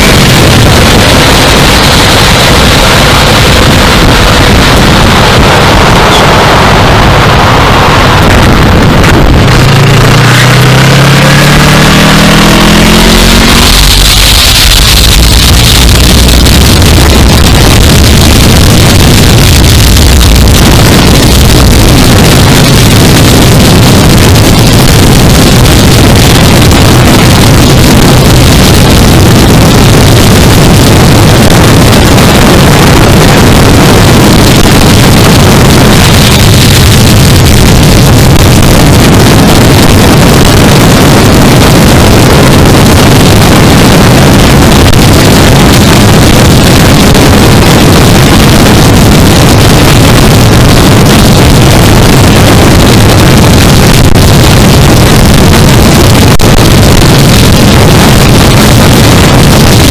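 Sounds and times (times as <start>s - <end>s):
motorcycle engine running: 0.0s - 59.9s
wind rush on microphone: 0.0s - 59.9s.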